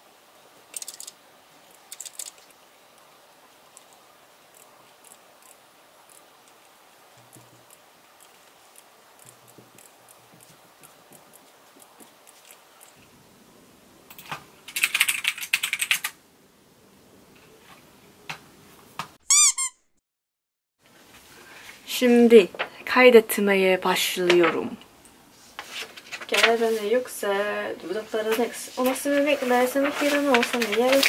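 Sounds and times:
computer mouse clicks: 0.7 - 1.2
typing on keyboard: 0.8 - 1.2, 14.1 - 16.2.

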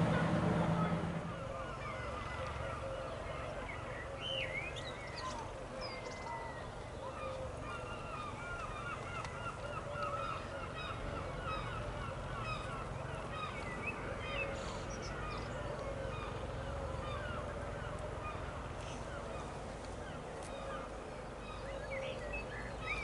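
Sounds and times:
low steady rumble: 0.0 - 3.6
flock of birds calling: 0.0 - 23.0.

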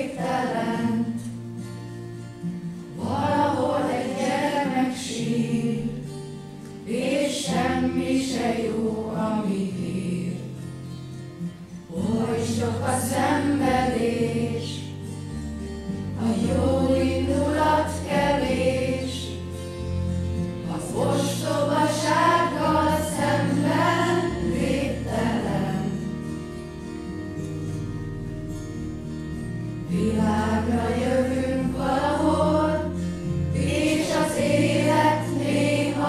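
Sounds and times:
group of voices singing: 0.0 - 1.4, 2.9 - 6.2, 6.8 - 10.6, 11.9 - 14.9, 16.2 - 19.6, 20.6 - 26.1, 29.9 - 36.0.

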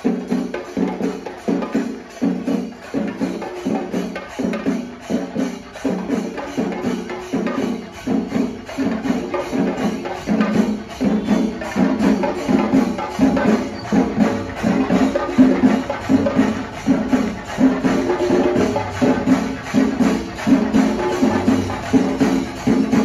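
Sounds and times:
drums in fast rhythm: 0.0 - 23.0.

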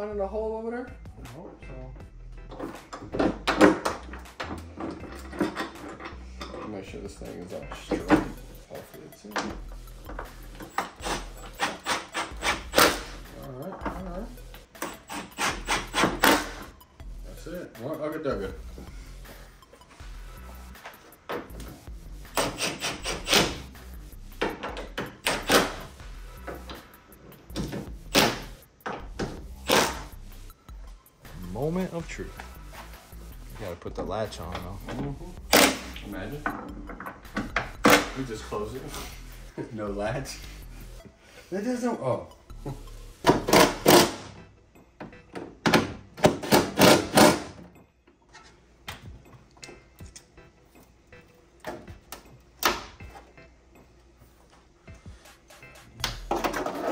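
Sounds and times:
hands and tools knocking and scraping: 2.5 - 8.5, 24.3 - 30.1, 34.4 - 38.4, 43.2 - 44.4, 55.3 - 56.9.

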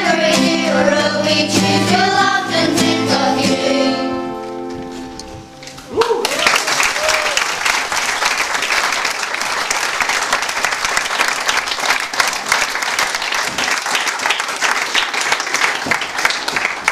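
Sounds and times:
audience applauding: 5.9 - 16.9.

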